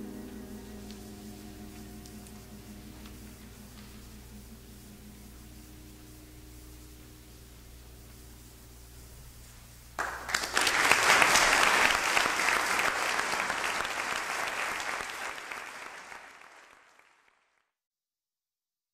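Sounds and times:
audience applauding: 0:10.0 - 0:17.7.

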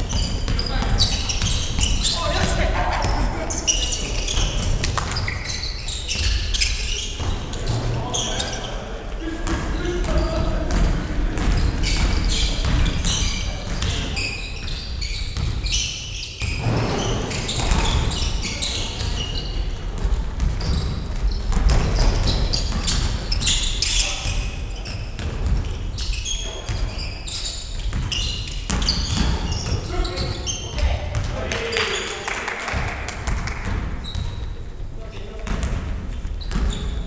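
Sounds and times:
sneakers squeaking: 0:00.0 - 0:32.2, 0:33.3 - 0:37.0
basketball bouncing: 0:04.1 - 0:05.3, 0:09.4 - 0:14.0, 0:14.6 - 0:15.7, 0:19.9 - 0:23.5, 0:25.2 - 0:25.7, 0:27.9 - 0:29.8, 0:35.4 - 0:35.9.

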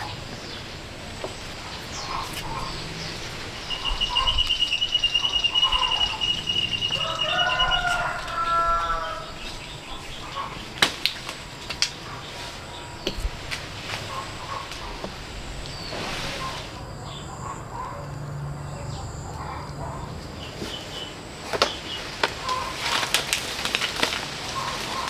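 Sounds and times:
lower bird call: 0:01.9 - 0:10.7
bird fast high trill: 0:03.6 - 0:08.0.

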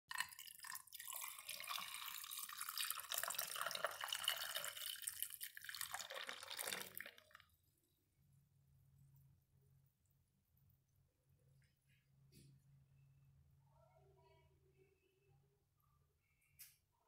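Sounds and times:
juice pouring into glass with ice: 0:00.1 - 0:07.6.

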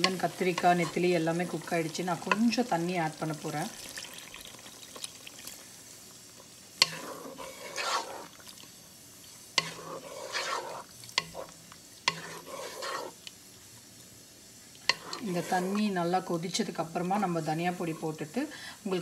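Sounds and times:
spatula scraping pan: 0:00.0 - 0:02.8, 0:06.8 - 0:08.5, 0:09.4 - 0:13.2, 0:14.8 - 0:16.0.

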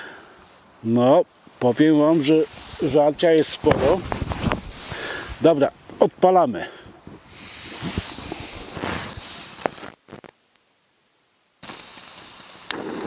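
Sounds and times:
gas hissing from stove burner: 0:07.2 - 0:09.9, 0:11.6 - 0:13.0
sharp igniter clicks: 0:11.6 - 0:13.0.

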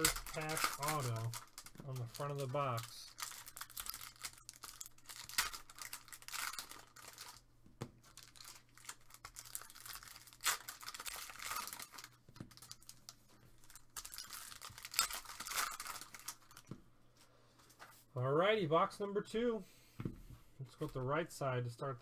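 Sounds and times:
foil wrapper tearing and crinkling: 0:00.0 - 0:07.4, 0:08.1 - 0:13.0, 0:13.6 - 0:16.6.

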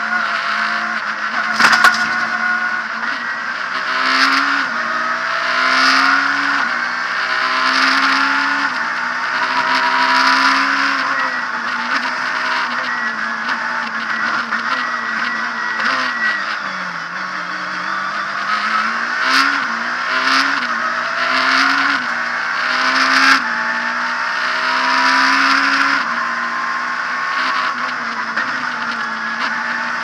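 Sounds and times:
rally car engine revving: 0:00.0 - 0:30.0
sharp crack of gear changes: 0:01.4 - 0:02.8.

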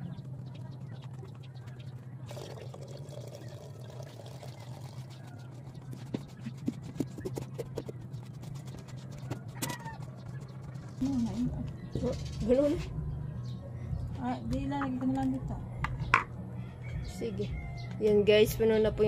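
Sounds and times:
water trickling into a pitcher: 0:02.2 - 0:05.5.

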